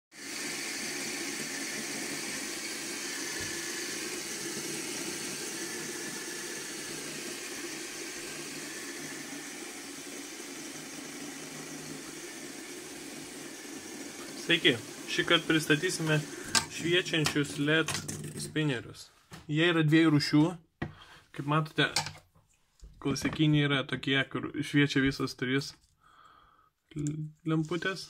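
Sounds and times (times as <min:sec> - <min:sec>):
fidget spinners whirring: 0:00.2 - 0:18.4.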